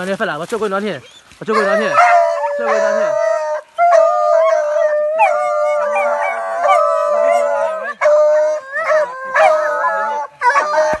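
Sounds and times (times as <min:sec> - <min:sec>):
dogs howling: 0:01.5 - 0:11.0.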